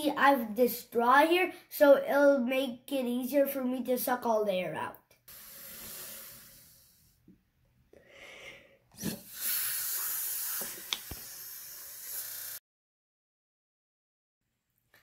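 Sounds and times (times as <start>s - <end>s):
air sucked through a straw: 5.3s - 7.2s, 9.0s - 12.6s.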